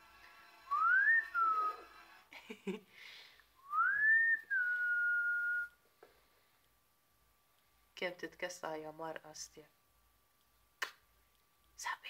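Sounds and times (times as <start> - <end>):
person whistling: 0.7 - 1.8, 3.6 - 5.8.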